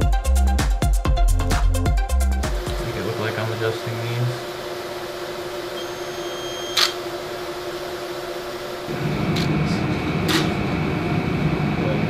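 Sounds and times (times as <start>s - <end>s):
electronic equipment hum: 2.6s - 12.0s.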